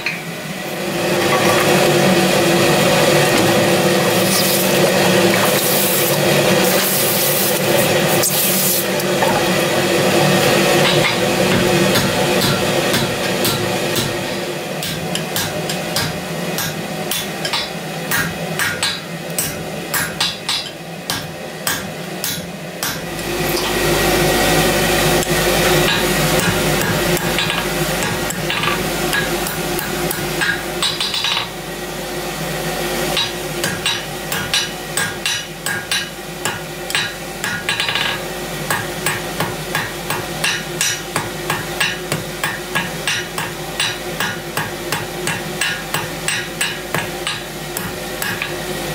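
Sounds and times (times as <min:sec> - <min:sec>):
hammer striking steel on anvil: 0:10.8 - 0:14.2, 0:14.8 - 0:23.0, 0:25.8 - 0:31.5, 0:33.2 - 0:48.6.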